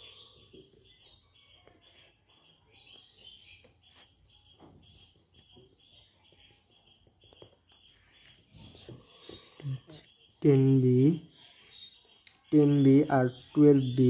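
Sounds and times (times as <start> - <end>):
pencil scratching on paper: 0.0 - 10.3
faint high chirps: 0.0 - 14.0.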